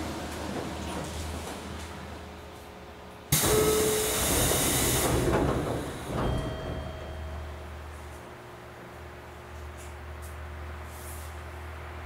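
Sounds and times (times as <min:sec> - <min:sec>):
train low hum: 0:00.0 - 0:12.0
air hiss of doors opening: 0:03.3 - 0:06.3.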